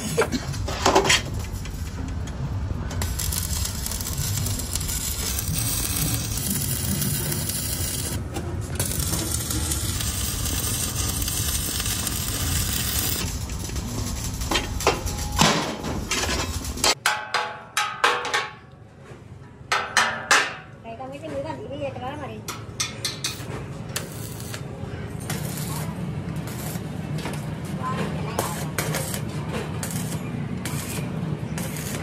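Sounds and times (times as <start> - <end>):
arc welding crackling sizzle: 2.9 - 17.0, 24.0 - 32.0.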